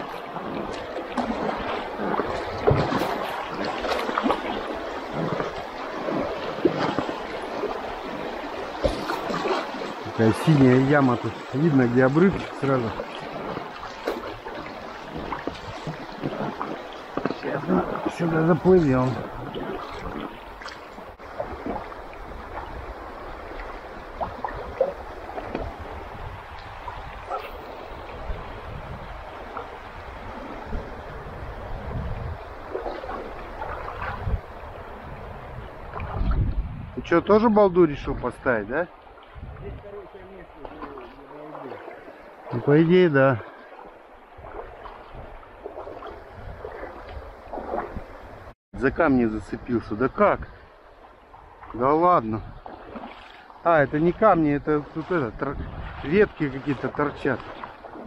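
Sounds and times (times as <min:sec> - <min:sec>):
sharper splashes: 0:00.0 - 0:10.7
river water splashing around boat: 0:00.0 - 0:58.0
wind rumble on microphone: 0:17.8 - 0:38.5, 0:39.1 - 0:41.1, 0:44.3 - 0:53.2, 0:54.1 - 0:56.8.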